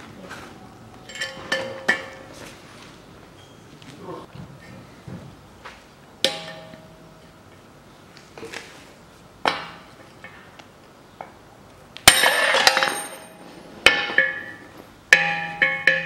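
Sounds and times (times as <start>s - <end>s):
metallic clatter: 0.6s - 2.4s
hammer striking metal: 0.9s - 2.4s, 6.2s - 7.3s, 12.0s - 16.0s.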